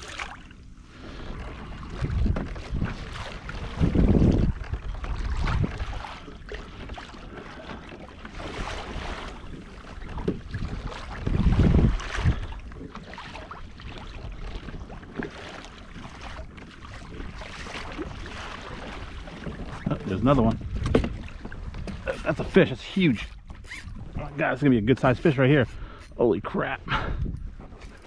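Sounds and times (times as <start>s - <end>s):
water rushing: 0.0s - 0.5s, 17.3s - 21.3s
wind buffeting microphone: 1.2s - 6.5s, 8.4s - 15.1s, 17.0s - 28.0s.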